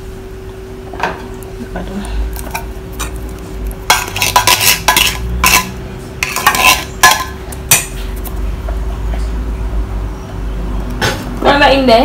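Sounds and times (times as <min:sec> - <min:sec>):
metal clinking on saucepan: 0:03.9 - 0:08.0.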